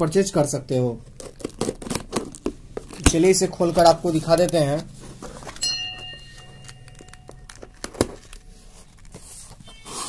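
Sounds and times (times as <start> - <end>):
cardboard flaps rustling: 1.0 - 10.0
knife and box clicks and knocks: 5.4 - 10.0.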